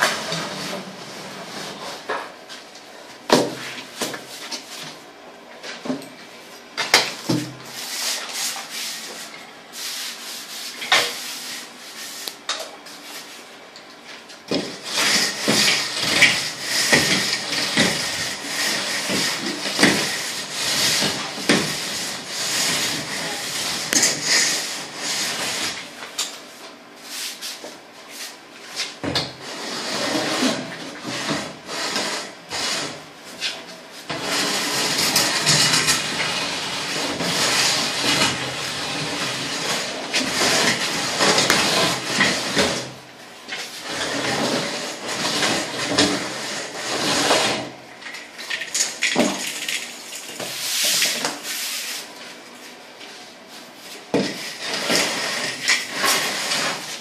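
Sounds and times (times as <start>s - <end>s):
straightedge scraping cement render: 14.5s - 26.3s, 27.1s - 52.2s, 53.6s - 57.0s.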